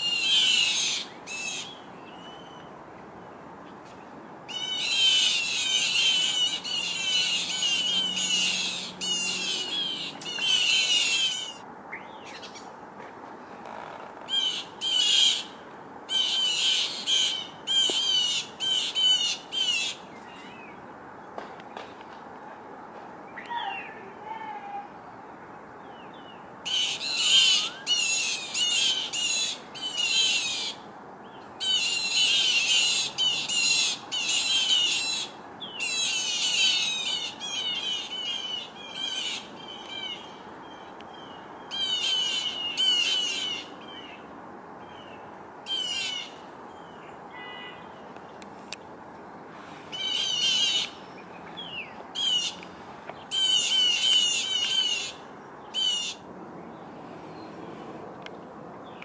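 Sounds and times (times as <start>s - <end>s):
small birds harsh alarm calls: 0.0s - 2.6s, 4.5s - 12.6s, 14.3s - 20.7s, 26.7s - 30.8s, 31.6s - 44.2s, 44.9s - 48.0s, 49.6s - 52.6s, 53.2s - 56.3s.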